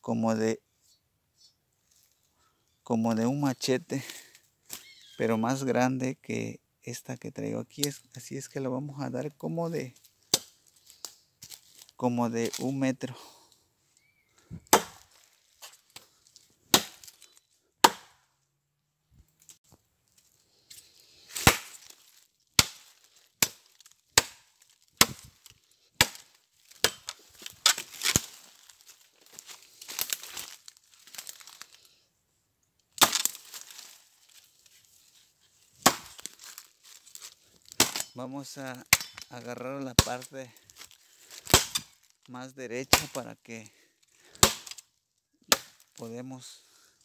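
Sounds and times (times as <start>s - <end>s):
machete chopping wood: 10.3s - 10.6s, 14.7s - 15.2s, 16.7s - 17.2s, 17.8s - 18.2s, 21.3s - 22.0s, 22.6s - 25.4s, 26.0s - 28.4s, 33.0s - 33.9s, 35.8s - 38.2s, 38.9s - 39.3s, 40.0s - 42.0s, 42.9s - 43.2s, 44.3s - 44.8s, 45.5s - 46.0s.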